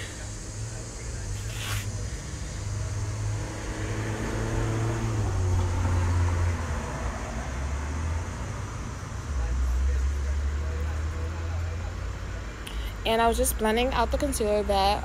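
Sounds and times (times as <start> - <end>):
motor vehicle engine rumble: 0.0 - 15.0
short scratchy noise: 1.4 - 1.9.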